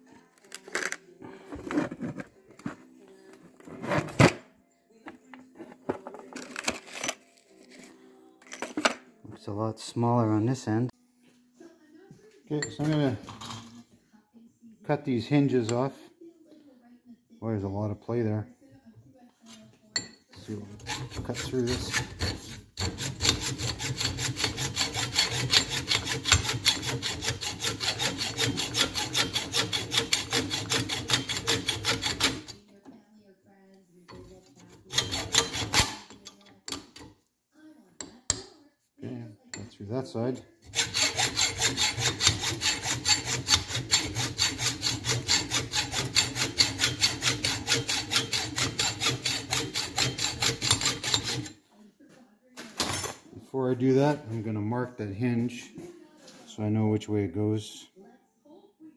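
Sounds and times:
hacksaw cutting metal: 20.4 - 32.6, 34.6 - 37.1, 40.6 - 51.6.

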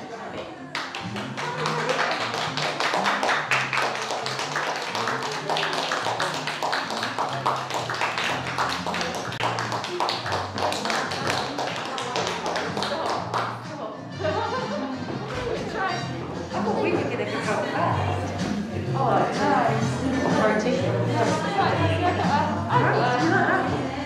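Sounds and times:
people clapping: 0.6 - 13.7
music with stepping bass line: 1.0 - 24.0.

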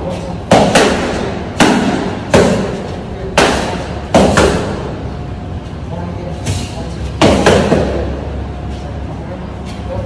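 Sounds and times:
punches smacking boxing pad: 0.5 - 4.9, 7.2 - 8.0.

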